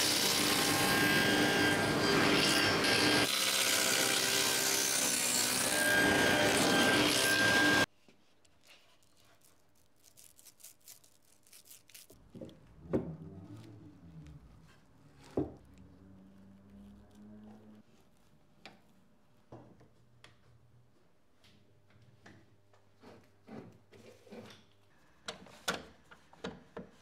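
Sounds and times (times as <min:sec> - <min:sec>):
table saw cutting wood: 0:00.0 - 0:07.9.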